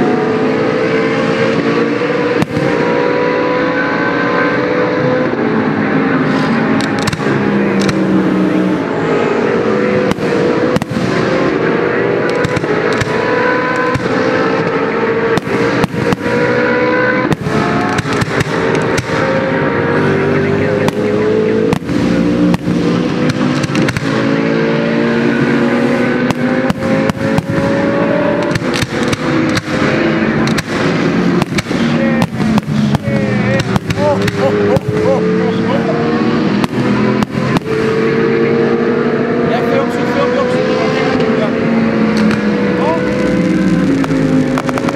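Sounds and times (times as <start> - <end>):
race car engines screaming: 0.0 - 44.9
fireworks bursting and crackling: 6.3 - 8.2, 10.1 - 11.2, 12.3 - 13.2, 15.3 - 16.3, 17.2 - 19.2, 21.7 - 24.1, 28.4 - 35.2, 36.6 - 37.8, 42.2 - 44.9.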